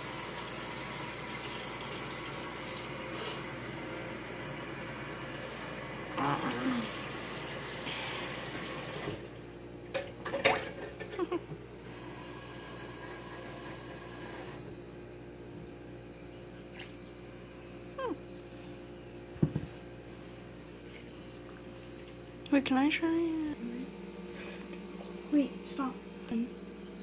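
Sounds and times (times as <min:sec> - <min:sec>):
water running from tap: 0:00.0 - 0:03.1, 0:06.2 - 0:09.4.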